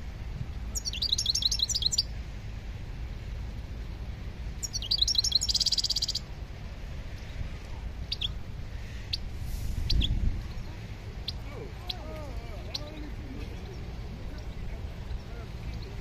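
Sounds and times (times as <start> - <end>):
low background rumble: 0.0 - 16.0
songbird twittering and trilling: 0.4 - 2.2, 3.8 - 6.4, 8.0 - 16.0
high bird chirps: 0.7 - 2.1, 4.6 - 6.2, 8.1 - 8.4, 9.8 - 12.0.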